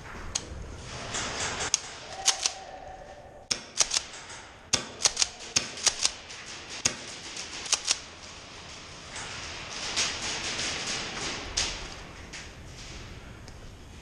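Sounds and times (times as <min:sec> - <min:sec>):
airsoft guns firing: 0:03.5 - 0:04.1, 0:04.7 - 0:08.1.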